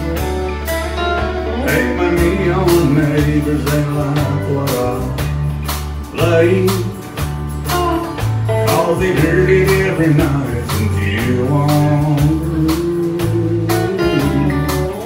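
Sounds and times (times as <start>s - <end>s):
drums steady beat: 0.0s - 15.0s
electric bass: 0.0s - 15.0s
strummed acoustic guitar: 0.0s - 15.0s
man singing: 1.6s - 5.4s, 6.0s - 7.2s, 8.6s - 14.9s.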